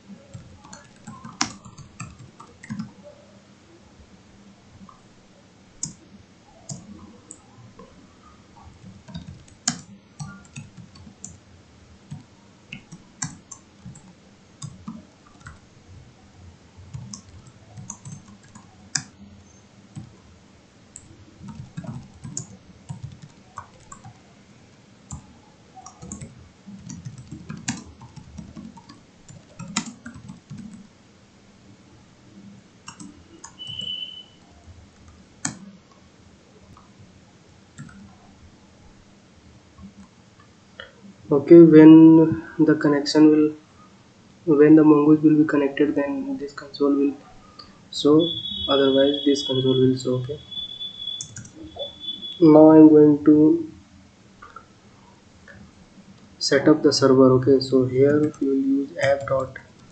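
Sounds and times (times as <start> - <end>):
typing on computer keyboard: 0.3 - 3.0, 8.6 - 11.4, 12.1 - 15.6, 16.9 - 19.2, 21.0 - 24.2, 25.1 - 30.8, 32.8 - 34.2, 37.8 - 38.2, 49.5 - 52.4
brief high beep: 33.6 - 34.4, 48.2 - 49.8.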